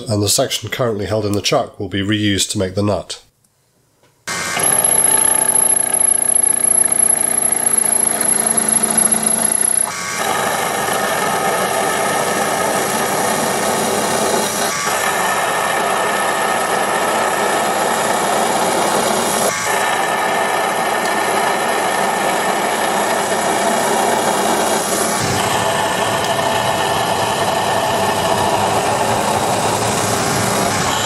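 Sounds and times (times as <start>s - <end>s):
lathe turning steel: 4.3s - 31.0s.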